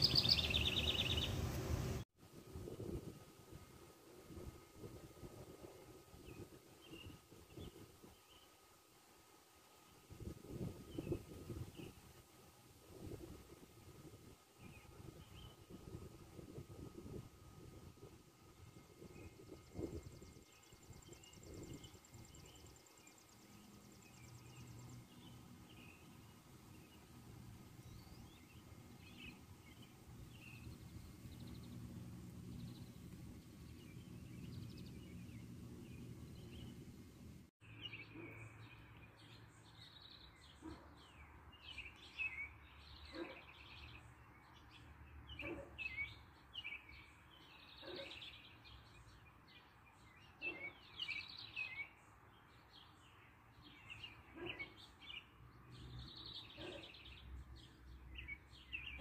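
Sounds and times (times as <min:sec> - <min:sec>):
sparrows chirping: 0:00.0 - 0:01.6, 0:06.2 - 0:08.6, 0:14.5 - 0:16.2, 0:18.5 - 0:59.0
low background rumble: 0:24.3 - 0:37.5.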